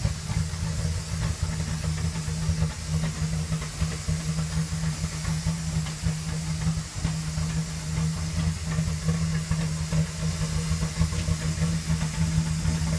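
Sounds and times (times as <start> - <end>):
engine idling rough: 0.0 - 12.9.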